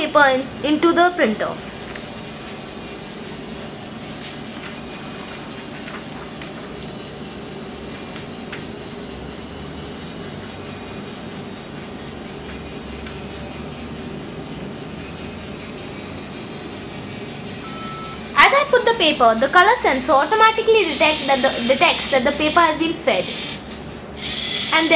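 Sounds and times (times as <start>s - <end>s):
servo motor running: 20.7s - 24.9s.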